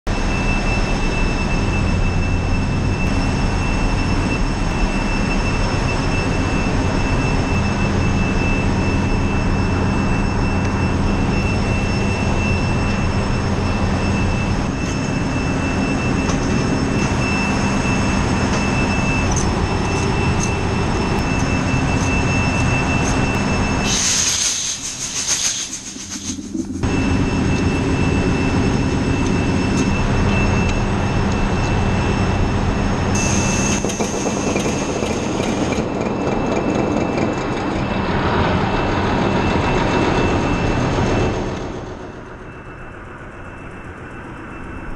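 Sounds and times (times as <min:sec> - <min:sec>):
engine room machinery drone: 0:00.0 - 0:44.9
short hiss: 0:23.9 - 0:26.5.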